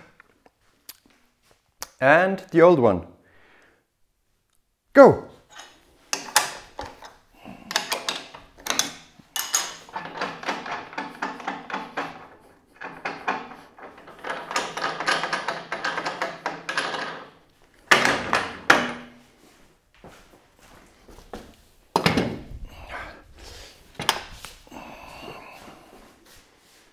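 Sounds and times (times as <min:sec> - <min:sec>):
metal clanking and rattling: 0:05.5 - 0:19.2.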